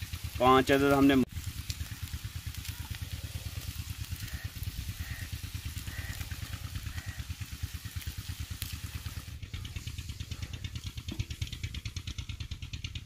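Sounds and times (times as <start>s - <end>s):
meat frying hiss: 0.0s - 12.4s
small engine chugging: 0.0s - 13.0s.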